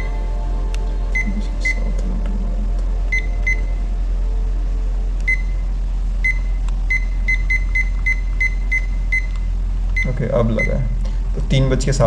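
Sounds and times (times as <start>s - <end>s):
steady low hum: 0.0s - 12.0s
kitchen timer beeps: 5.3s - 5.6s.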